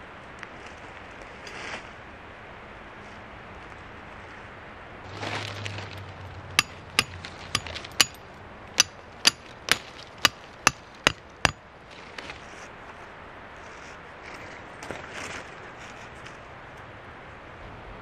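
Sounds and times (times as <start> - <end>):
rustle of brush and leaves: 0.0 - 17.9
hammer striking tent stake: 6.5 - 8.2, 8.8 - 11.6.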